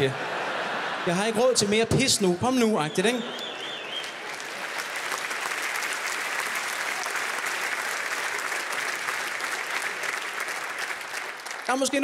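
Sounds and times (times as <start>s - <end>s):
audience applauding: 2.5s - 12.0s.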